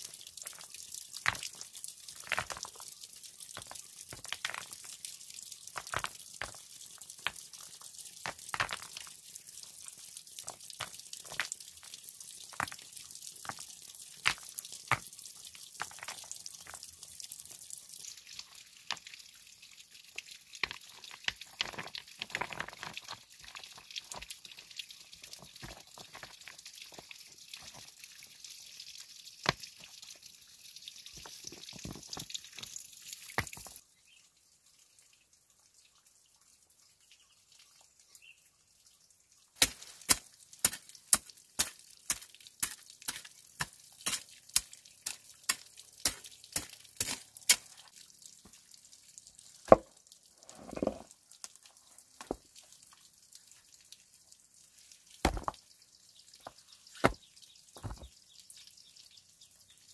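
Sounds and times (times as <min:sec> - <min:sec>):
stones knocking together: 0:03.6 - 0:04.8, 0:05.8 - 0:06.6, 0:08.2 - 0:09.1, 0:31.2 - 0:32.3, 0:49.7 - 0:49.9, 0:50.5 - 0:51.1, 0:55.2 - 0:55.6, 0:56.4 - 0:57.2, 0:57.8 - 0:58.1
stone scraping on earth: 0:50.4 - 0:51.1.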